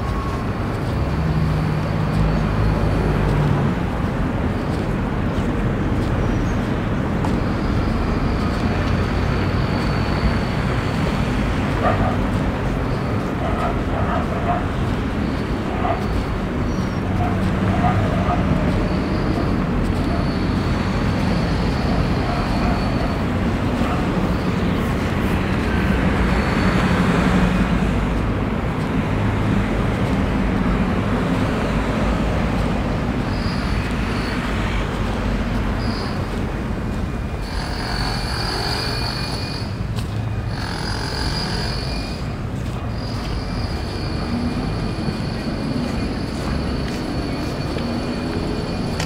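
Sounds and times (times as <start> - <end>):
road traffic rumble: 0.0 - 49.0.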